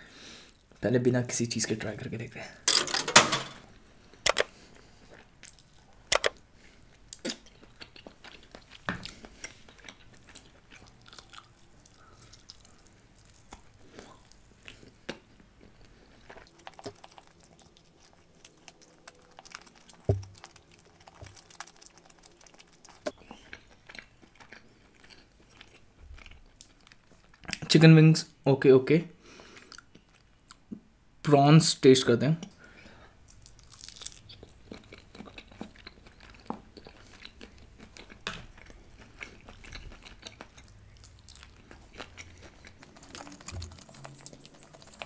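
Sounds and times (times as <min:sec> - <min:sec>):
chewing and biting chicken wings: 0:04.6 - 0:27.6, 0:33.3 - 0:45.0.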